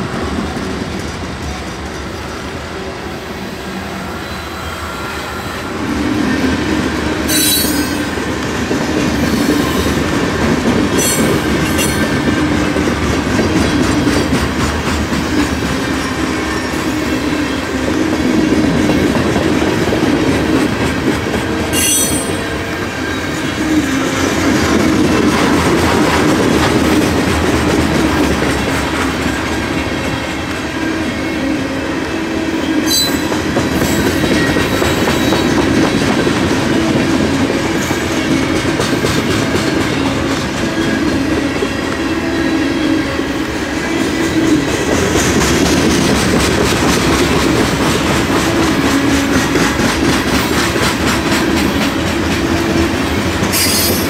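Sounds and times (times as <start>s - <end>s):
freight train rumbling past: 0.0s - 54.0s
high wheel squeals: 7.2s - 8.1s, 21.7s - 24.0s.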